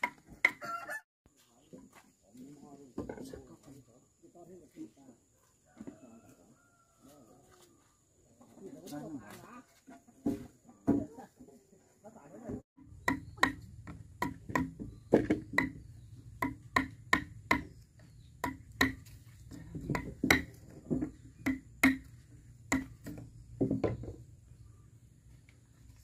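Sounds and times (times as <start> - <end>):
hand tool striking wood: 0.0 - 0.6, 12.8 - 24.2.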